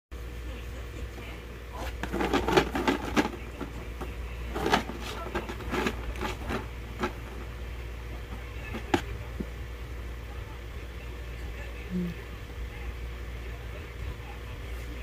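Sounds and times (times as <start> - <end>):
cardboard carton crinkling and rattling: 1.8 - 7.6.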